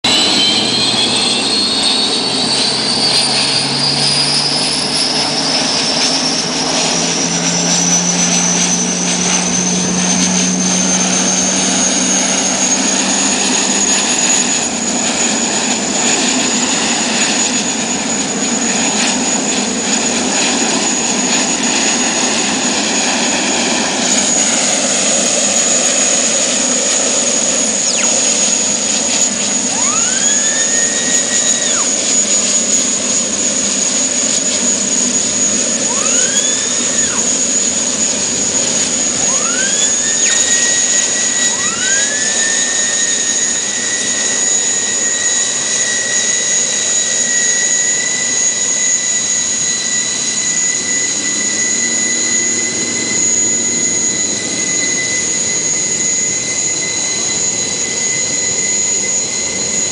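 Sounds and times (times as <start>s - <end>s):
turbine engine whine: 0.0s - 59.9s
rushing roar: 0.1s - 44.3s.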